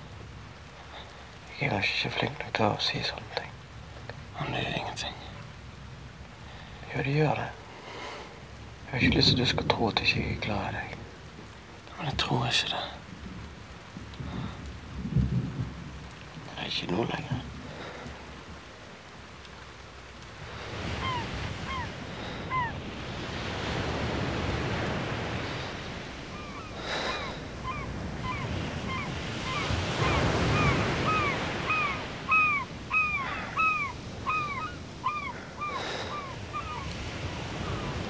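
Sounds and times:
sea surf on rocky shore: 16.7 - 38.0
bird giving short calls: 20.5 - 22.8, 24.5 - 38.0.

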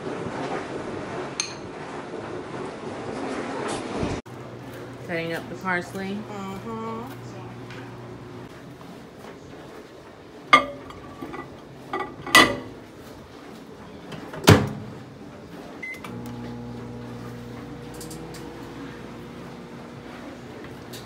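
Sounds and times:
microwave humming: 4.3 - 21.0
glass bowl clinking on turntable: 10.5 - 12.8.

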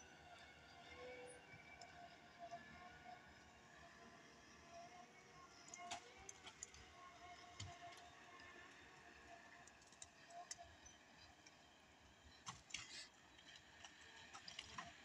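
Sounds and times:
faint clicks and cracks: 5.6 - 6.9, 7.5 - 8.8, 9.5 - 11.6, 12.3 - 15.0.

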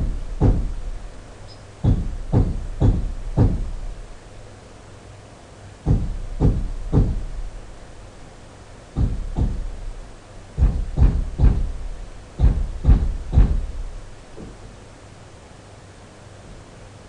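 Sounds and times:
dull knocks: 0.0 - 0.9, 1.8 - 3.9, 5.9 - 7.5, 9.0 - 10.0, 10.6 - 14.6.

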